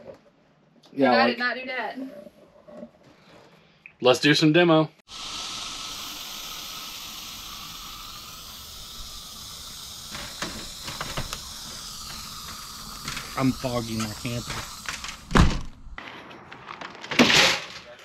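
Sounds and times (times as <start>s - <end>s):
aerosol fogger hissing: 5.1s - 16.0s.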